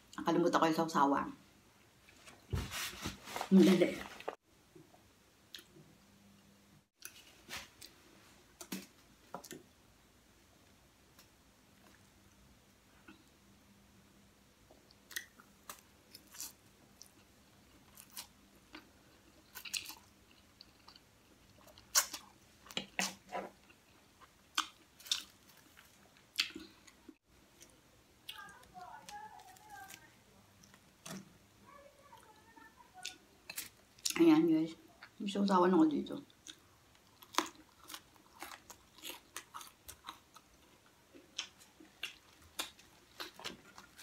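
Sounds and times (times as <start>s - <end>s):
crisp chewing crunches: 36.3s - 44.0s.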